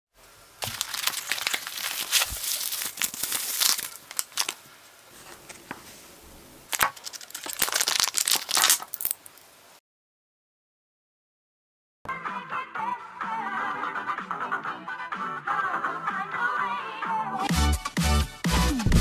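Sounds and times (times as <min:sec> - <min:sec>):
plastic bag crinkling: 0:00.6 - 0:05.8, 0:06.7 - 0:09.5.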